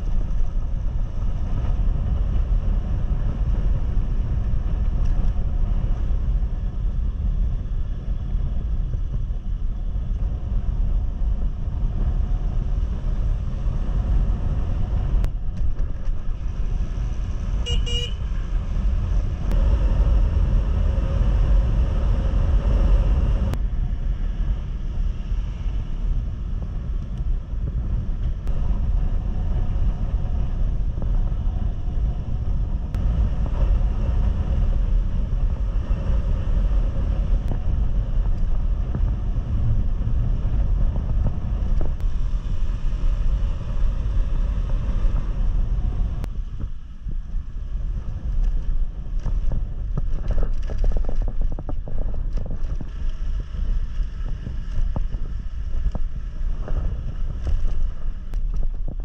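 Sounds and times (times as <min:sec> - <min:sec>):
motorcycle engine hum: 0:00.0 - 0:59.0
wind rush on microphone: 0:00.0 - 0:59.0
horn beep: 0:17.6 - 0:18.2.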